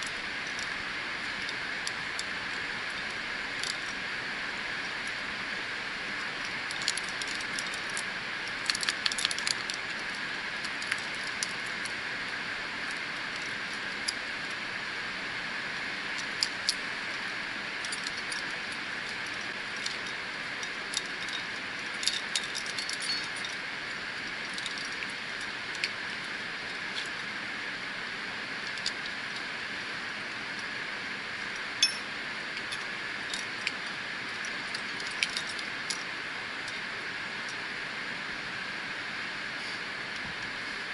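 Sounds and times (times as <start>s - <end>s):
steady hiss: 0.0s - 40.9s
metal climbing gear clinking: 19.2s - 23.6s, 31.8s - 33.8s.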